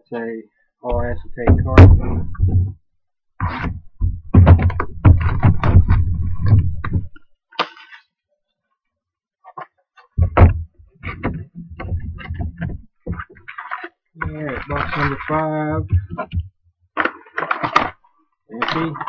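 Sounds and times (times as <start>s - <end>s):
cardboard box thuds and knocks: 3.6s - 7.1s, 10.2s - 13.2s
papery rustling: 11.0s - 16.4s.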